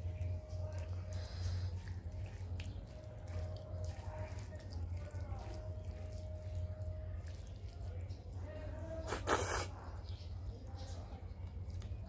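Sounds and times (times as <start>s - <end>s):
fingers squelching rice: 0.0s - 8.4s, 9.0s - 9.9s.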